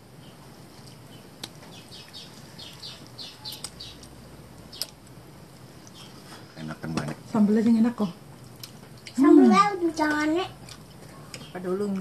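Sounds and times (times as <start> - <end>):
small bird chirping: 0.0 - 5.0, 5.8 - 6.4, 11.1 - 12.0.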